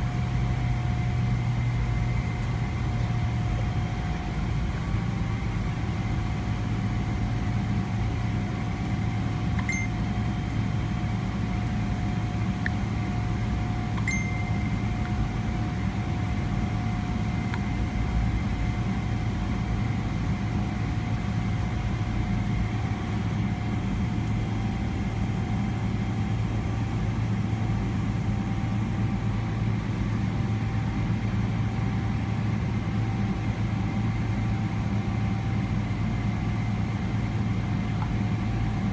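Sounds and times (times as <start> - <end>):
aircraft cabin drone: 0.0 - 38.9
mid-pitched whine: 0.0 - 38.9
faint short high tones: 14.0 - 14.8.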